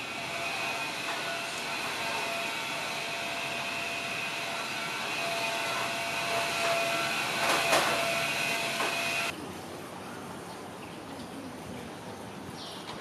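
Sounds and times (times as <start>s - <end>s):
mechanical whine: 0.0s - 9.3s.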